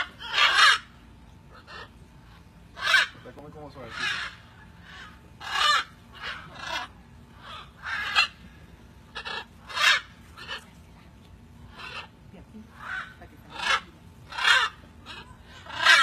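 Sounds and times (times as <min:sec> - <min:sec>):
macaws squawking: 0:00.0 - 0:10.8, 0:11.6 - 0:16.0.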